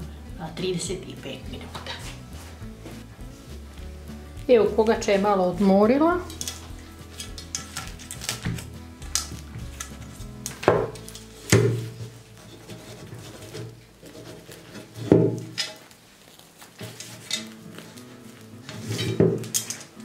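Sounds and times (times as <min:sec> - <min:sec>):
soft background music: 0:00.0 - 0:20.0
metal baking pan clattering: 0:06.2 - 0:08.2, 0:18.7 - 0:20.0.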